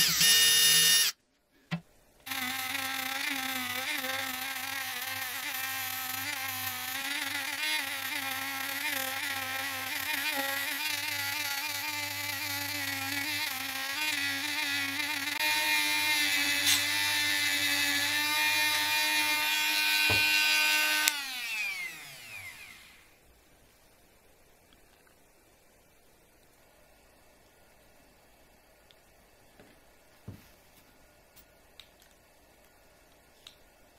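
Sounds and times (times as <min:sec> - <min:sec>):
rotary tool motor whine: 0:00.0 - 0:01.2, 0:02.3 - 0:23.2.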